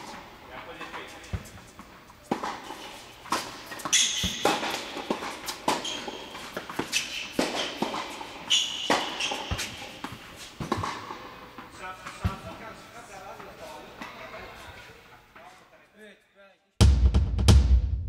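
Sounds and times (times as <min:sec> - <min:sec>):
sneakers squeaking on court: 0:01.1 - 0:12.5
ball bouncing: 0:01.3 - 0:12.4
racket striking tennis ball: 0:02.3 - 0:12.4.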